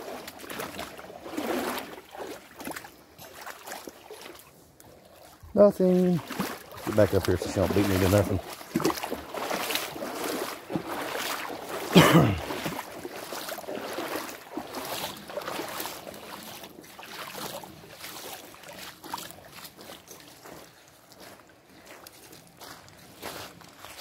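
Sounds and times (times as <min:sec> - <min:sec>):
footsteps splashing through water: 0:00.0 - 0:24.0.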